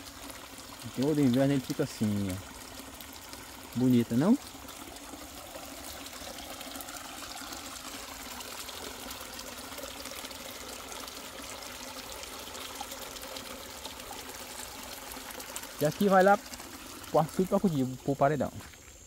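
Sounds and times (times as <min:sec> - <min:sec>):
small stream running: 0:00.0 - 0:19.0.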